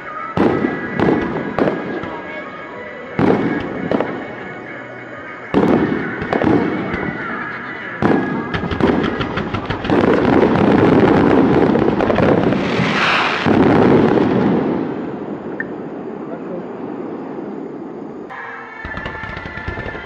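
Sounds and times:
firework shells bursting: 8.0s - 14.4s, 18.8s - 20.0s.

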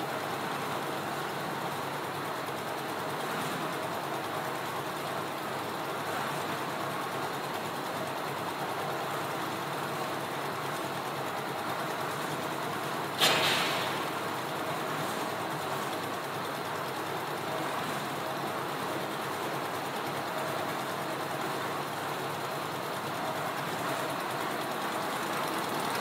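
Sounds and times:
concrete mixer engine running: 0.0s - 26.0s
sudden loud burst of noise: 13.2s - 14.2s.

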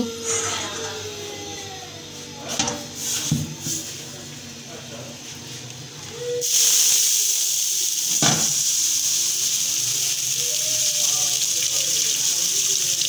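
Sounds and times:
water hissing on hot griddle: 6.4s - 13.0s.

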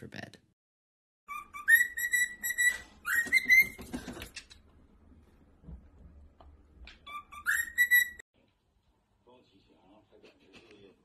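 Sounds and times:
cockatiel whistling: 1.3s - 3.8s, 7.1s - 8.2s.

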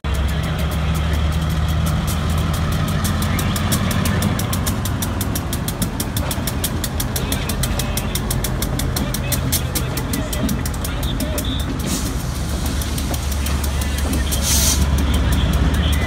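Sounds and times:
fast high-pitched ticking: 0.0s - 16.0s
locomotive diesel engine running: 0.0s - 16.0s.

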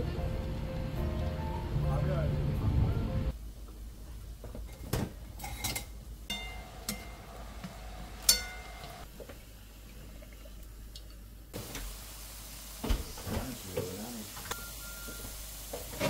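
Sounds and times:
garlic sizzling in oil: 5.4s - 9.9s, 11.5s - 16.0s.

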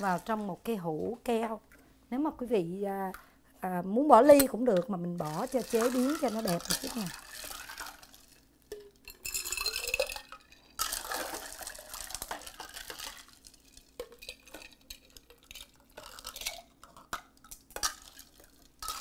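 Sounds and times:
liquid pouring and splashing: 5.2s - 17.0s, 17.8s - 19.0s.

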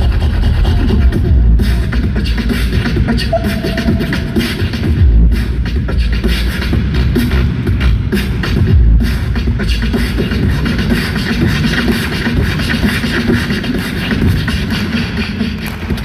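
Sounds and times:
fast percussive beat: 0.0s - 15.5s
vocals over a beat: 0.0s - 16.0s.

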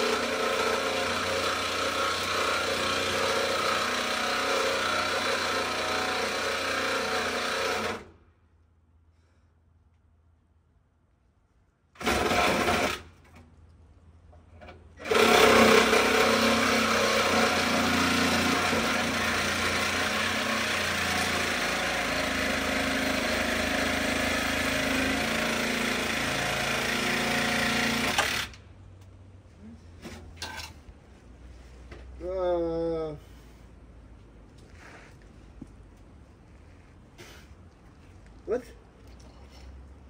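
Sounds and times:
power tool running: 0.0s - 8.1s, 15.0s - 28.6s.

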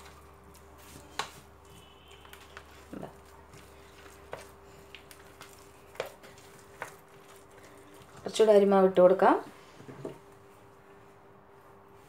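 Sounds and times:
spoon stirring thick batter: 0.0s - 8.7s.

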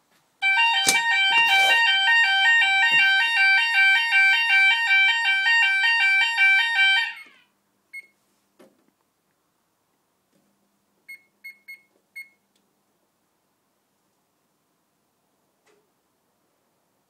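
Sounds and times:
short high beep: 0.4s - 2.2s
two-tone fire alarm: 0.4s - 7.4s.

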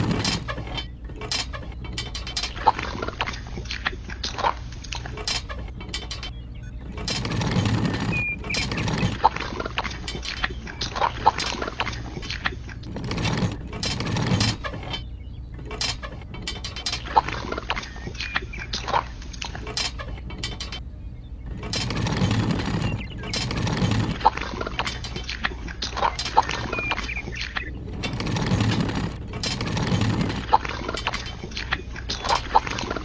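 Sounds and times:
plastic toy clicks and scrapes: 0.0s - 2.6s, 5.2s - 9.3s, 12.8s - 15.0s, 21.5s - 33.0s.

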